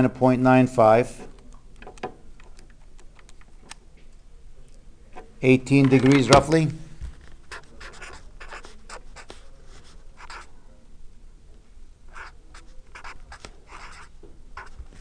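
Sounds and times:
marker pen writing on paper: 0:07.4 - 0:10.5, 0:12.1 - 0:15.0.

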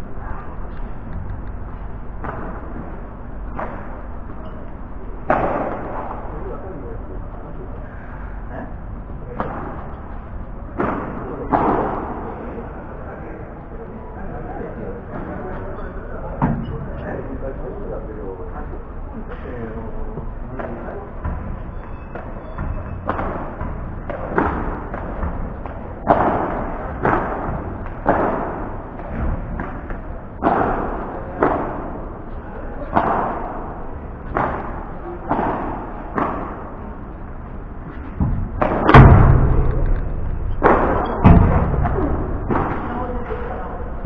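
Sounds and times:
rackets striking ball: 0:00.2 - 0:07.5, 0:08.4 - 0:12.4, 0:20.2 - 0:44.0
deep thud: 0:38.2 - 0:43.0.

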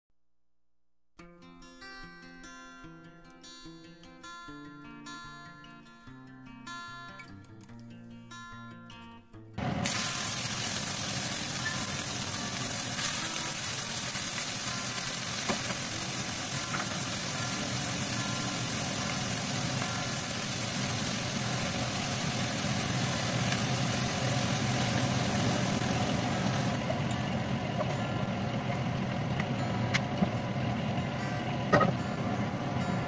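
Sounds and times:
fish sizzling in hot oil: 0:09.6 - 0:27.9
steady low hum: 0:09.6 - 0:33.0.

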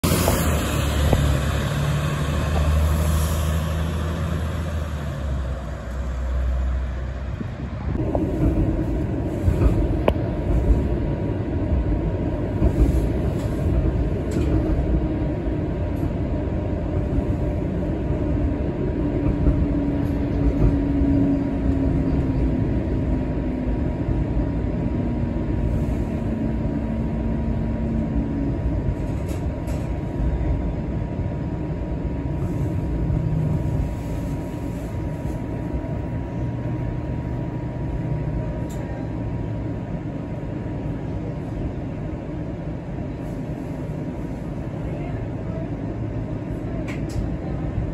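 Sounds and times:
bus diesel engine rumbling: 0:00.0 - 0:47.9
streetcar wheels rattling on rails: 0:00.0 - 0:47.9.

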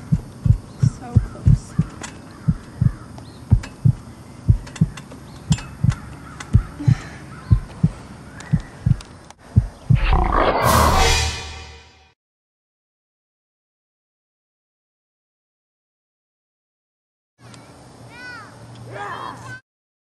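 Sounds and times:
heartbeat thumps: 0:00.0 - 0:10.2
loud roar: 0:10.0 - 0:11.4.

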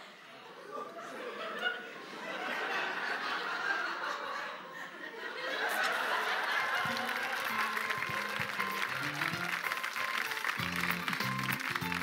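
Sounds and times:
studio audience laughing: 0:00.5 - 0:09.5.

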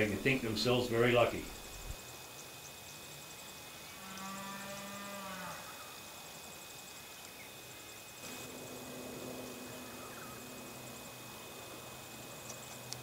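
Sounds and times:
faint insect ticking: 0:00.0 - 0:13.0
low animal call: 0:08.5 - 0:10.9.

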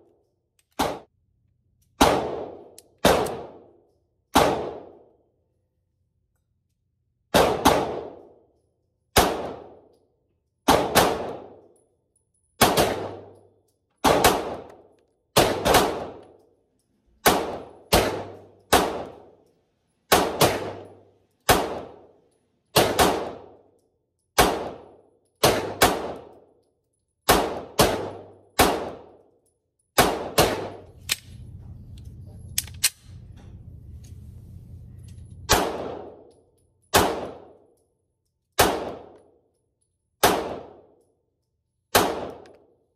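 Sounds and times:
pistol shots: 0:00.7 - 0:01.0, 0:02.0 - 0:03.7, 0:04.3 - 0:05.0, 0:07.3 - 0:08.3, 0:09.1 - 0:09.8, 0:10.6 - 0:11.6, 0:12.6 - 0:13.4, 0:14.0 - 0:16.4, 0:17.2 - 0:19.4, 0:20.1 - 0:22.1, 0:22.7 - 0:23.6, 0:24.4 - 0:26.4, 0:27.3 - 0:29.2, 0:30.0 - 0:31.4, 0:35.5 - 0:36.3, 0:36.9 - 0:37.6, 0:38.6 - 0:39.2, 0:40.2 - 0:40.9, 0:41.9 - 0:42.7
steady low rumble: 0:30.6 - 0:36.2.

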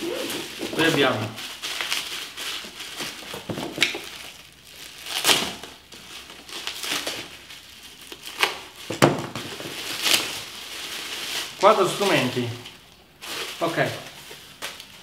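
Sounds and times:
plastic bags crinkling: 0:00.0 - 0:15.0.

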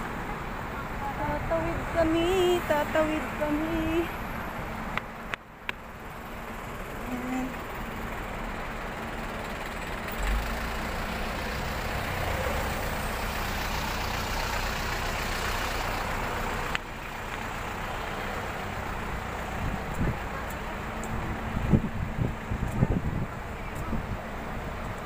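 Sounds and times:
low traffic rumble: 0:00.0 - 0:25.0
vehicle engines running: 0:00.0 - 0:25.0.

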